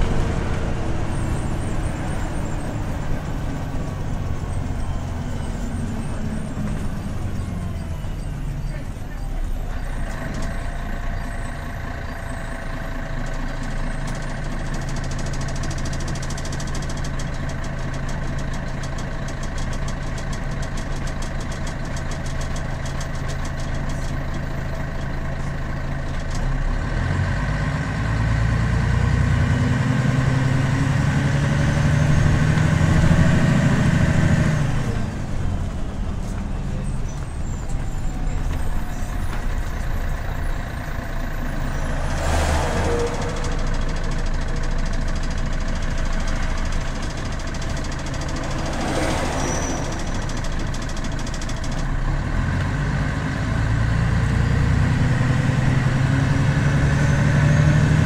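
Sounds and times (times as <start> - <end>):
bus diesel engine: 0.0 - 58.0.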